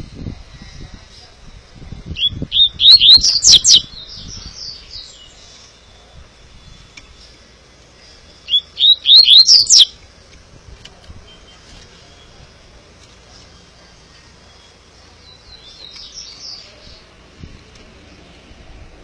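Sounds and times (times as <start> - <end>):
bird singing whistled notes: 2.1 - 7.2, 8.4 - 10.0.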